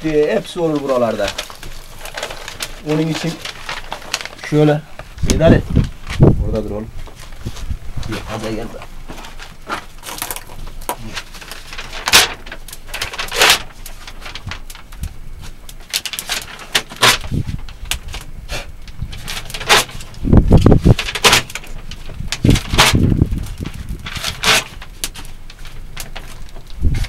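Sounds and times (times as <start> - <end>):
low wind buffeting: 0.0 - 11.3, 17.2 - 27.0
fire crackling: 0.0 - 27.0
newspaper tearing and crumpling: 0.2 - 6.2, 8.1 - 27.0.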